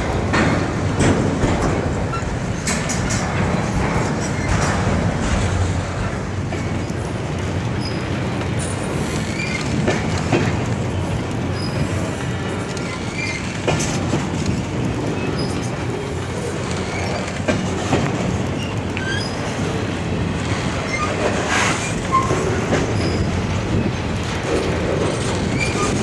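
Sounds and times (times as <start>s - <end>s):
steel wheels rumbling on rail: 0.0s - 26.0s
wheel squeals: 2.0s - 2.8s, 9.1s - 9.8s, 11.5s - 12.0s, 12.7s - 13.9s, 15.2s - 17.4s, 18.4s - 19.7s, 20.7s - 23.8s, 24.7s - 26.0s.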